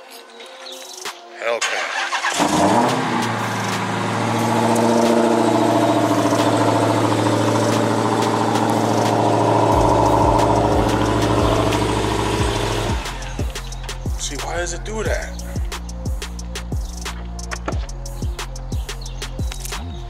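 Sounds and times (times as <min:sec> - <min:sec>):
car engine idling high: 0:02.3 - 0:14.1.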